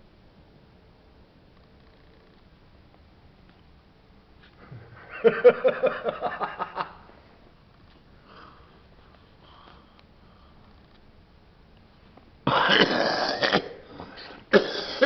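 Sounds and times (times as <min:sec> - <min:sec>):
person laughing: 0:04.6 - 0:07.1.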